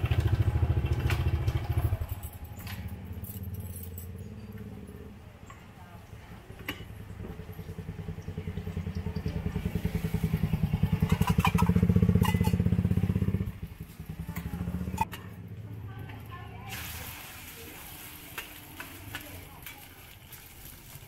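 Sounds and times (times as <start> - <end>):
small engine pulsing: 0.0 - 5.4, 6.8 - 15.5.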